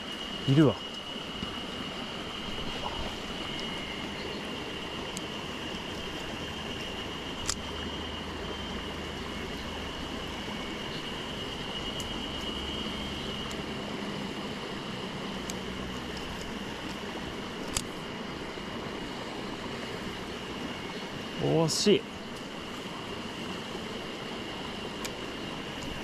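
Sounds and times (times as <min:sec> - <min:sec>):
stream running over rocks: 0:00.0 - 0:26.0
sharp clicks: 0:07.4 - 0:07.6, 0:17.6 - 0:18.0.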